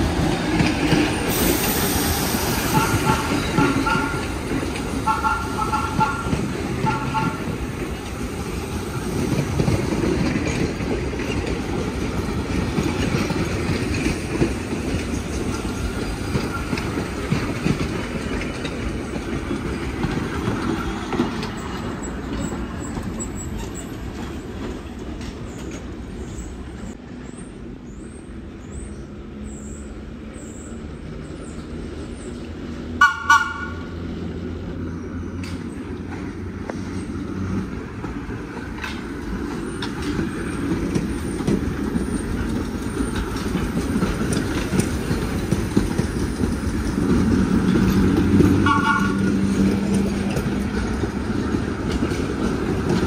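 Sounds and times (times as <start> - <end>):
subway train rumbling and clattering: 0.0 - 53.0
short train horn toots: 2.7 - 4.3, 5.0 - 7.5, 33.0 - 33.9, 48.6 - 49.4.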